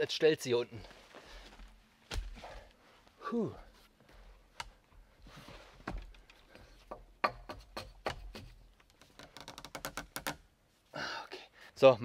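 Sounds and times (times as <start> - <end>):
knocks and scrapes on wooden poles: 3.7 - 10.5.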